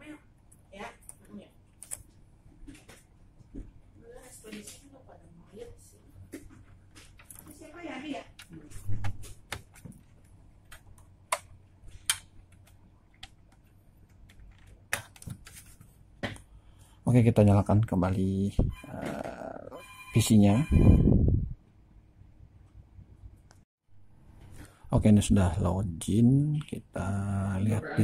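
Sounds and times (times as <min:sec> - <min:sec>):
computer parts clicking and knocking: 0:08.4 - 0:15.5.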